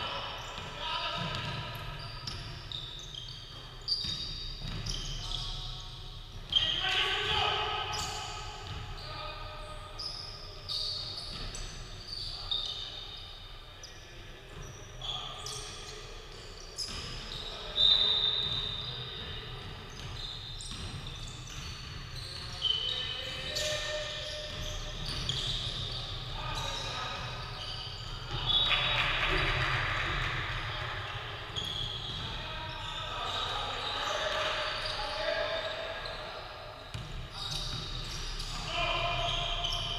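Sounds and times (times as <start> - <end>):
sneakers squeaking on court: 0.2 - 39.9
basketball bouncing: 0.6 - 2.5, 36.9 - 38.0.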